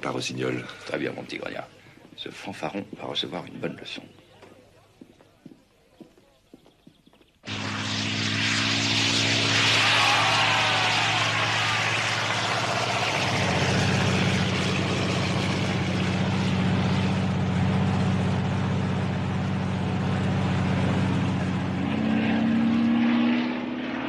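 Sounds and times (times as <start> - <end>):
propeller aeroplane engine: 7.4 - 24.0.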